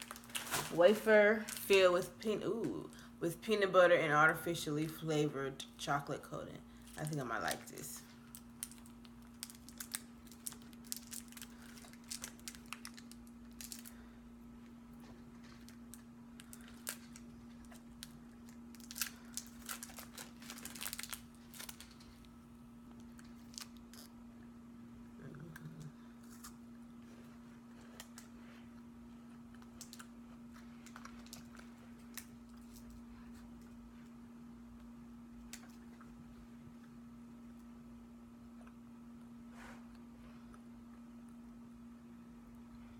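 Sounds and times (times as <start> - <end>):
plastic wrapper crinkling and tearing: 0.0 - 1.7, 6.8 - 14.0, 15.4 - 24.2, 29.6 - 33.0.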